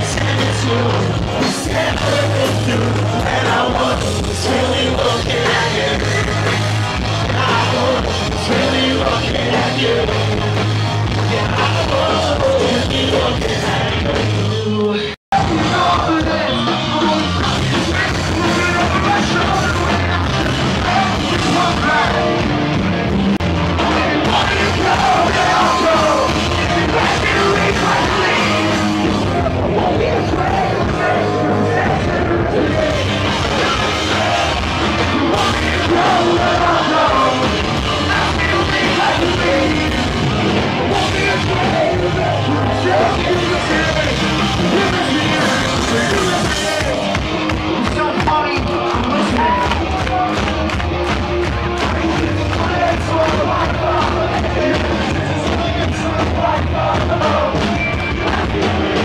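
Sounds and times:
person singing: 0.0 - 22.5, 23.8 - 50.5
live punk rock band: 0.0 - 59.0.

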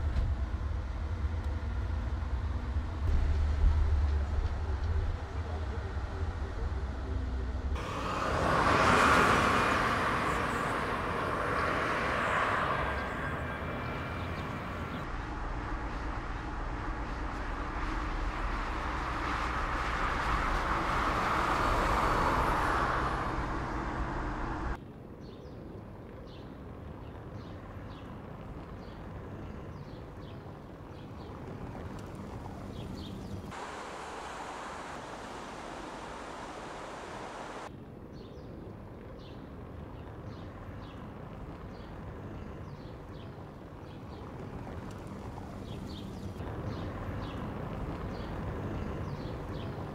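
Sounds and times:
car tyre and wind noise passing: 7.8 - 24.8
fountain water jets hissing: 33.5 - 37.7.

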